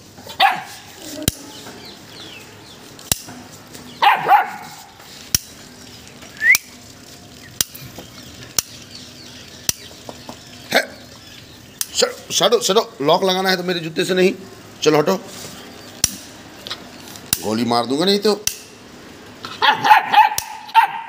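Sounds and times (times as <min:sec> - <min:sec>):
dog barking: 0:00.3 - 0:00.9, 0:04.0 - 0:04.9, 0:19.6 - 0:21.0.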